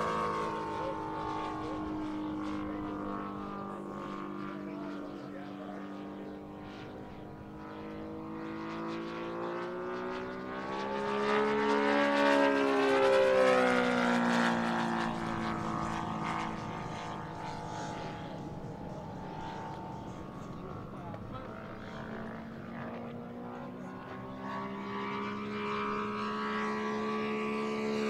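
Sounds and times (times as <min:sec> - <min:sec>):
model airplane engine droning: 0:00.0 - 0:28.0.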